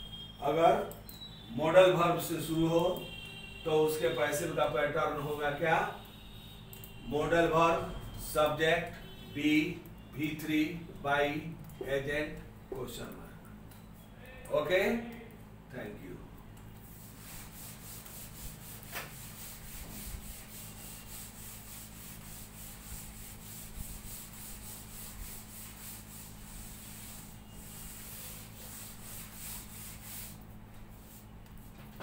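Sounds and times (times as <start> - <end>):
duster wiping chalkboard: 16.8 - 32.0.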